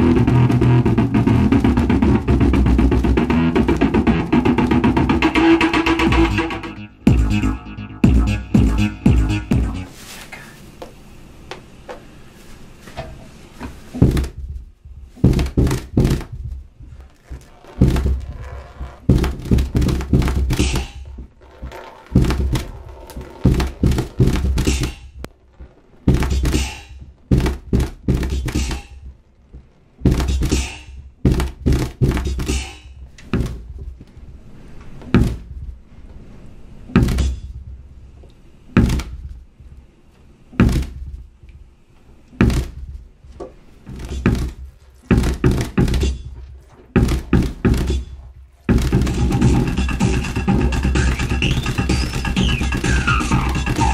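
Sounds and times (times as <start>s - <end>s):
deep thumps with sharp click: 13.9s - 25.3s, 26.0s - 34.1s, 35.0s - 35.8s, 36.9s - 37.9s, 38.7s - 39.8s, 40.5s - 41.4s, 42.4s - 53.9s.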